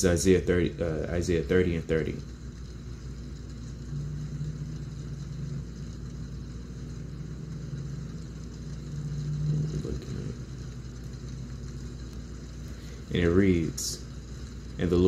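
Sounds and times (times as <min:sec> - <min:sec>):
faint droning tone: 0:00.0 - 0:15.0
steady low hum: 0:00.0 - 0:15.0.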